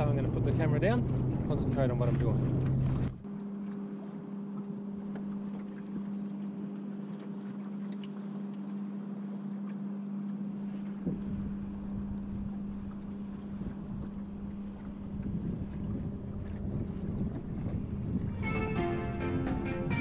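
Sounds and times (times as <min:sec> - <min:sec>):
steady low hum: 0:00.0 - 0:20.0
water lapping along a hull: 0:00.0 - 0:20.0
wind noise: 0:11.0 - 0:12.7, 0:13.5 - 0:20.0.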